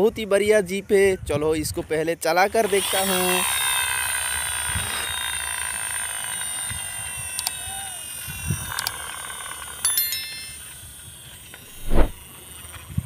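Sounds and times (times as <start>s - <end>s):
toy wheels spinning whine: 2.3s - 13.0s.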